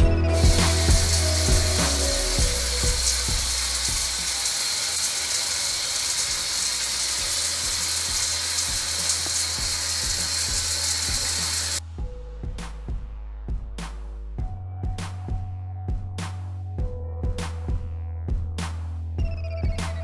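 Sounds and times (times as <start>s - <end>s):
shower spraying water: 0.4s - 11.8s.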